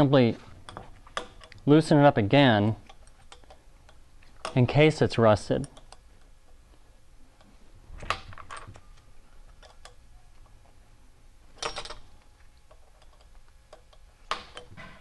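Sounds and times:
allen wrench clicking on bolts: 2.9s - 4.7s, 5.6s - 6.3s, 9.6s - 10.0s, 12.7s - 14.7s.

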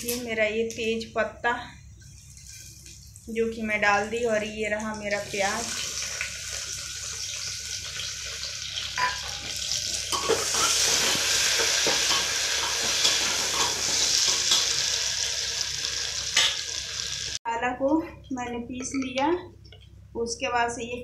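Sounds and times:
onions sizzling in hot oil: 5.0s - 17.4s.

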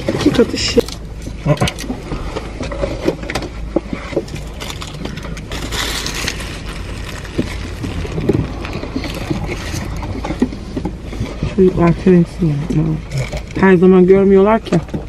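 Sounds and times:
people chewing: 0.0s - 13.9s
car interior hum: 0.0s - 15.0s
paper food wrappers crinkling: 3.8s - 10.4s.

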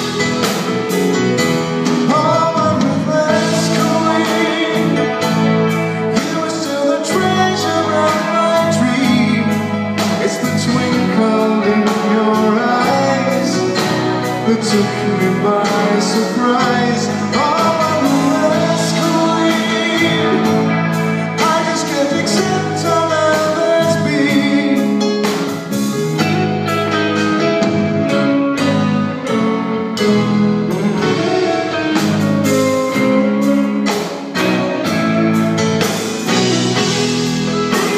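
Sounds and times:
live rock band playing ballad: 0.0s - 37.9s.

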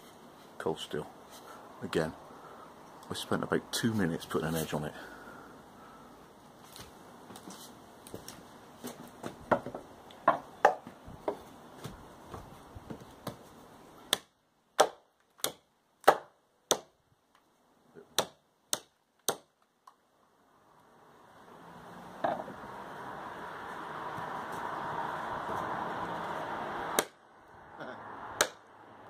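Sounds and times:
hatchet chopping wood: 9.5s - 10.9s, 14.1s - 17.0s, 18.0s - 19.6s, 26.9s - 27.2s, 28.4s - 28.7s.

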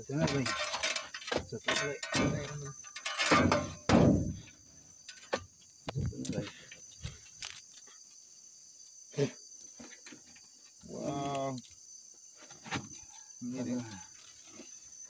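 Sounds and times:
crickets chirping: 0.0s - 15.0s
machete knocks and scrapes: 0.2s - 4.6s.

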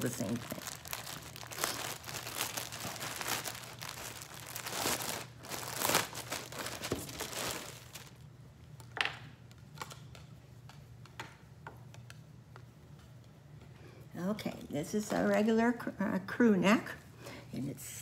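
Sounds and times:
packaging crinkling: 0.0s - 10.2s.

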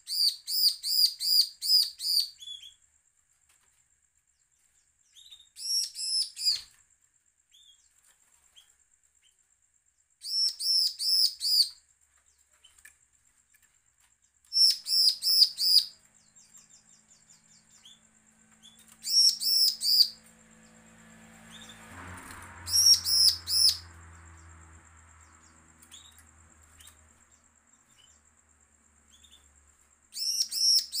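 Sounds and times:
bird singing high repeated notes: 14.6s - 18.0s, 18.6s - 20.2s, 22.7s - 23.9s, 30.1s - 31.0s.

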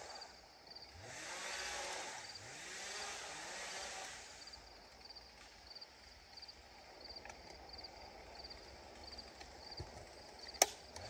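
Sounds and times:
sharp crack: 10.6s - 11.0s.

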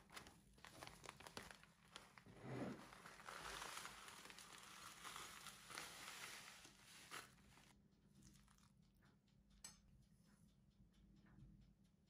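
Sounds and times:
plastic bag crinkling and clicking: 0.0s - 8.7s
crumbs sliding out of bag: 2.1s - 7.7s.

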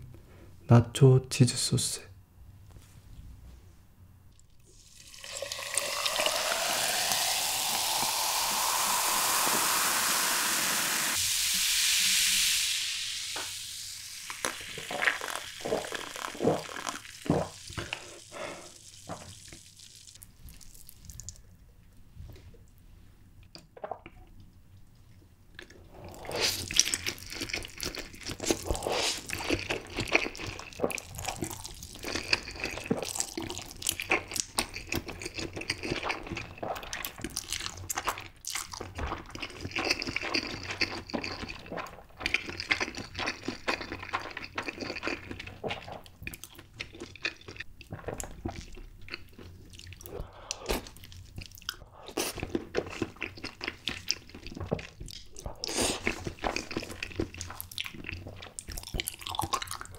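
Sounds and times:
slurping and chewing noodles: 14.2s - 21.4s, 25.6s - 59.9s.

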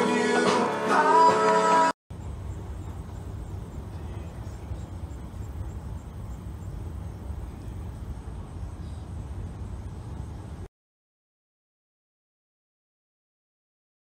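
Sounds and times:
steady low rumble: 2.1s - 10.7s.

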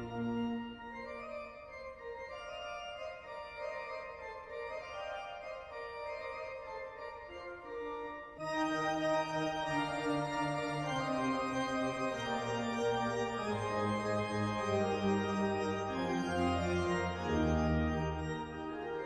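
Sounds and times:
organ chords: 7.0s - 19.0s.

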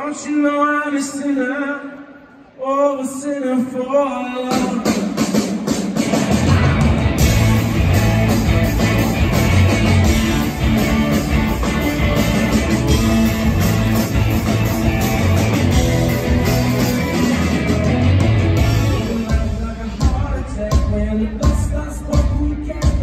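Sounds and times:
drums: 4.3s - 23.0s
electric guitars: 5.7s - 20.0s.

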